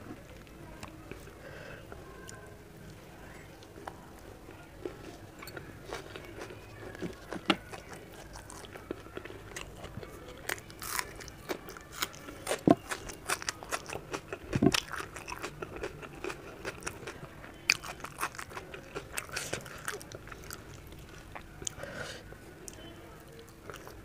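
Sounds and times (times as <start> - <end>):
person crunching raw onion: 5.9 - 21.8.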